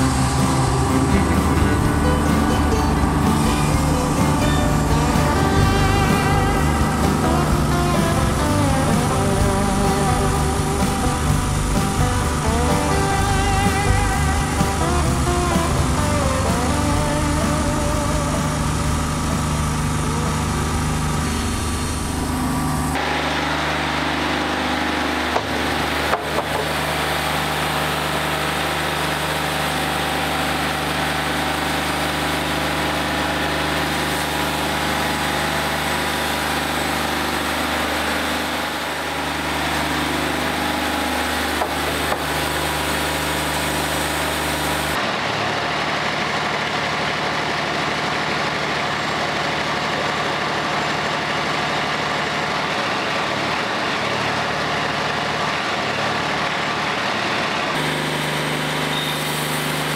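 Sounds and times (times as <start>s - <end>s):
sawmill engine humming: 0.0s - 59.9s
band blade cutting board: 38.9s - 45.0s.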